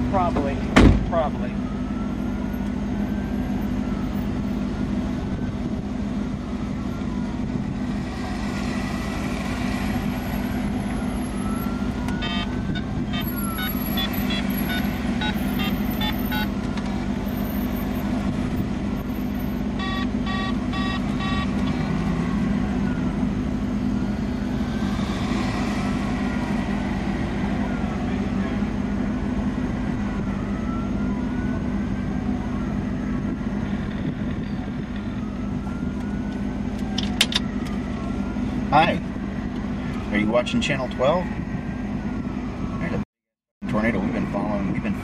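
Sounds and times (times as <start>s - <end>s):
vehicle engine humming: 0.0s - 43.0s
short electronic beeps: 12.2s - 16.5s, 19.8s - 21.6s.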